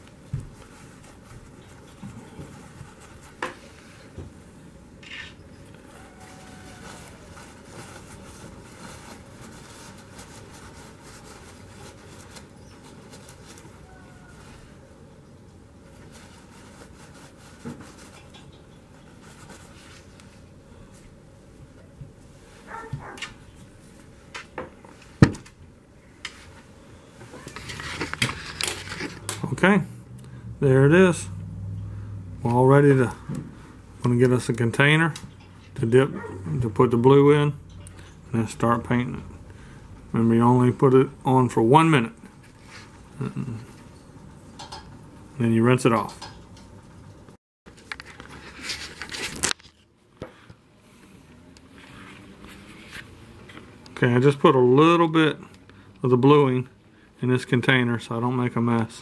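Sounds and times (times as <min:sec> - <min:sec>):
rustling: 0:00.0 - 0:25.3, 0:26.0 - 0:29.6, 0:47.7 - 0:49.9
paper towel rubbing on metal: 0:05.9 - 0:14.8, 0:15.8 - 0:18.4.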